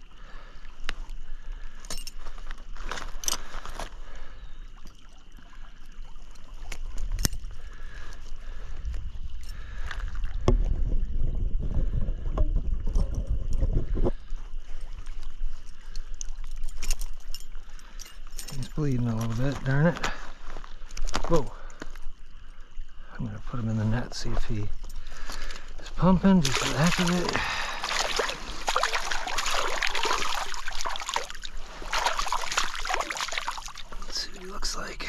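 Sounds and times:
stream water splashing: 0.0s - 8.8s, 14.6s - 35.0s
fishing tackle clicking and rattling: 1.8s - 2.3s, 6.7s - 7.6s, 16.0s - 19.4s.

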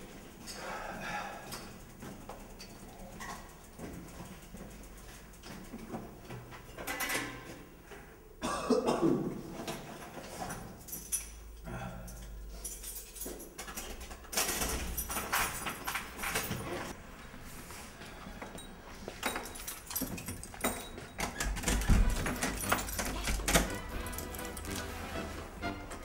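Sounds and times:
keys jangling in door lock: 1.5s - 5.6s, 10.0s - 16.9s, 19.2s - 25.0s
door opening and shutting: 19.3s - 26.0s.

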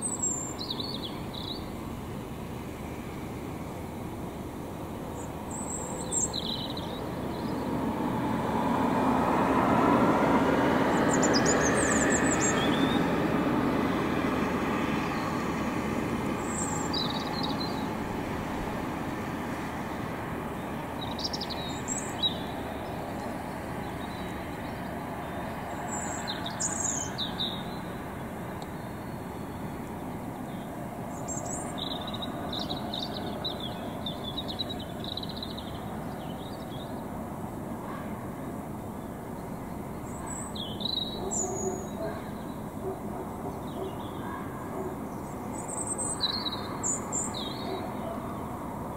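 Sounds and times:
road traffic hum: 0.0s - 48.9s
songbirds singing: 0.0s - 48.9s
vehicle passing: 5.6s - 36.4s.

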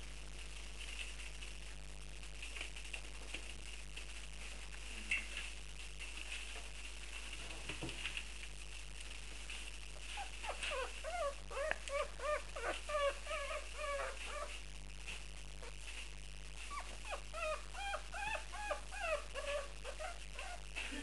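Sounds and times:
puppies whimpering: 10.1s - 14.5s, 16.7s - 20.7s.

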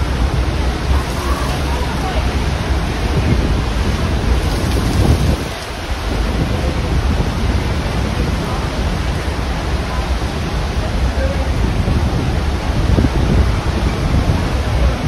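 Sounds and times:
waterfall roaring: 0.0s - 13.4s.

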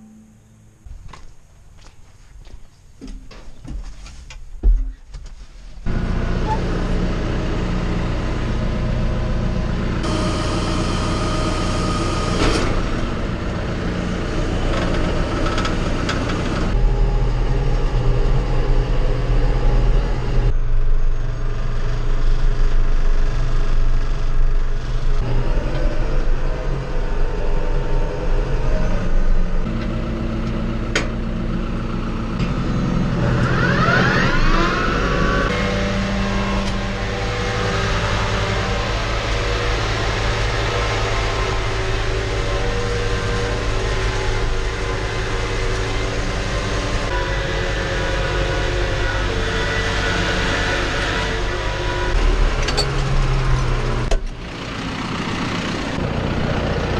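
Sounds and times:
tractor diesel engine running: 5.8s - 56.9s
whines: 5.9s - 22.2s, 32.3s - 54.9s.

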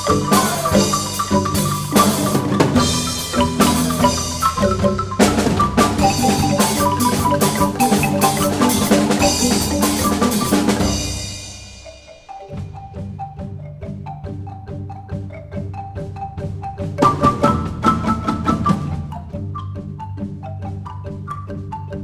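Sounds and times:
drum beat: 0.0s - 14.4s
mallet percussion notes: 0.0s - 22.0s.

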